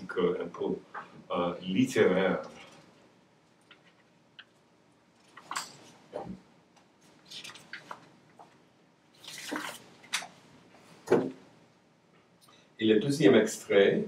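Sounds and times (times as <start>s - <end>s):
paper rustling: 7.0s - 8.6s, 9.2s - 10.1s.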